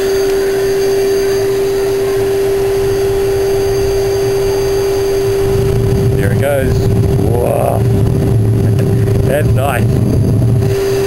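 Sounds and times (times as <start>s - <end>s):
fire rumbling: 0.0s - 11.0s
vacuum cleaner motor whine: 0.0s - 11.0s.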